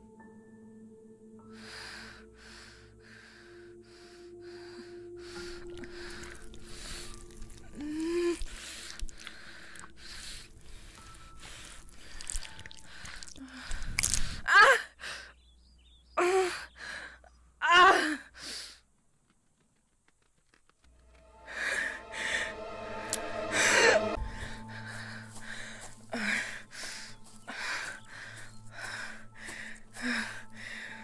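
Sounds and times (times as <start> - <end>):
woman panting and gasping: 1.6 - 15.4, 16.2 - 18.8, 24.0 - 31.0.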